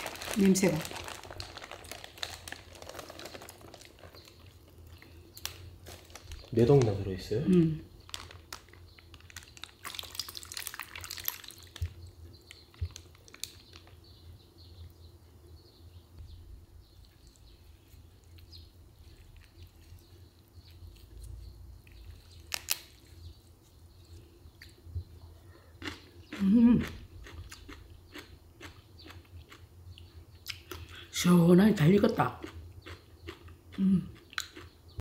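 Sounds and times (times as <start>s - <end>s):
crinkly rustle: 0.0s - 7.1s, 8.0s - 14.0s
wet chewing sounds: 8.1s - 14.0s, 17.0s - 24.8s, 25.7s - 31.0s, 32.4s - 35.0s.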